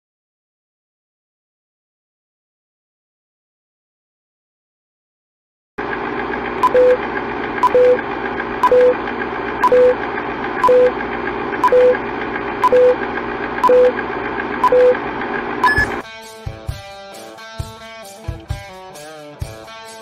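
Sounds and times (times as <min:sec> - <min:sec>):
film projector whir: 0:05.8 - 0:16.0
high-pitched beep: 0:06.6 - 0:07.0, 0:07.6 - 0:08.0, 0:08.6 - 0:09.0, 0:09.6 - 0:10.0, 0:10.6 - 0:10.9, 0:11.6 - 0:12.0, 0:12.6 - 0:13.0, 0:13.6 - 0:14.0, 0:14.6 - 0:15.0, 0:15.6 - 0:16.0
short low beep: 0:06.6 - 0:07.0, 0:07.6 - 0:08.0, 0:08.6 - 0:09.0, 0:09.6 - 0:10.0, 0:10.6 - 0:10.9, 0:11.6 - 0:12.0, 0:12.6 - 0:13.0, 0:13.6 - 0:14.0, 0:14.6 - 0:15.0, 0:15.6 - 0:16.0.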